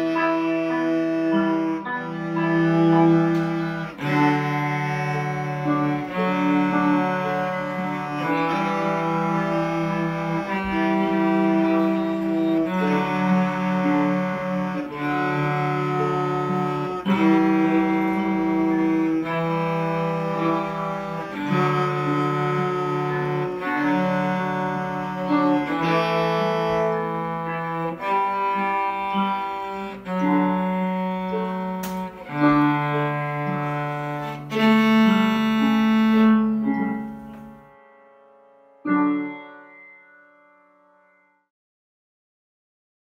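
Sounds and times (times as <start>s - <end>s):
cellos bowing long notes: 0.0s - 37.9s
piano accompaniment: 0.0s - 41.5s.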